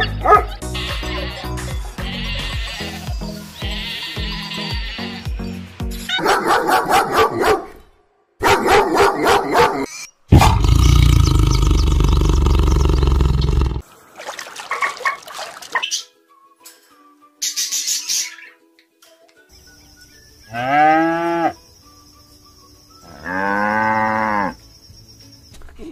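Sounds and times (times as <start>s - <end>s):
dog barking and growling: 0.0s - 0.6s, 6.1s - 7.8s, 8.4s - 13.8s
animal sounds: 0.0s - 5.2s, 9.0s - 13.8s.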